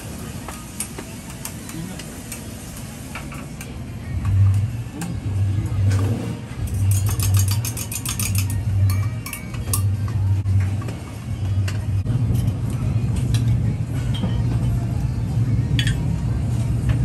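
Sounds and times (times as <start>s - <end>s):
kitchen equipment humming: 0.0s - 17.0s
utensils clinking against pans: 6.6s - 10.2s.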